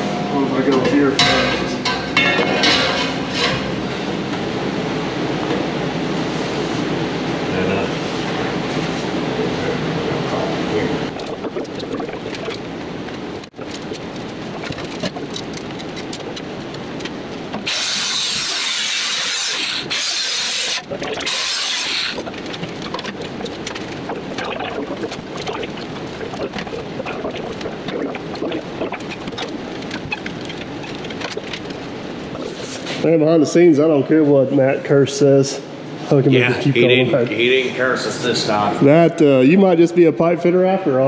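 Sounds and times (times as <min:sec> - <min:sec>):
welding arc crackling: 0:11.1 - 0:32.7
loud high hiss bursts: 0:17.7 - 0:22.2.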